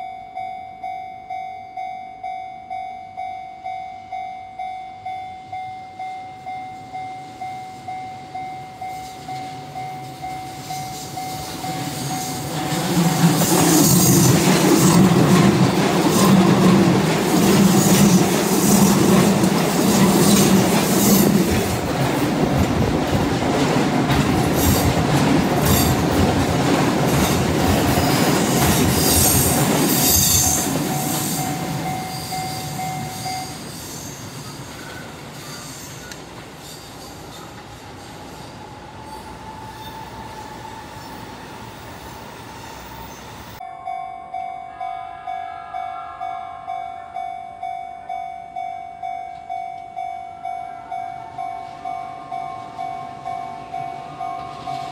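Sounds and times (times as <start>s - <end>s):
level crossing warning bell: 0.0s - 34.6s, 43.0s - 54.9s
train flanges squealing: 5.5s - 54.9s
train wheels clattering: 9.0s - 38.3s.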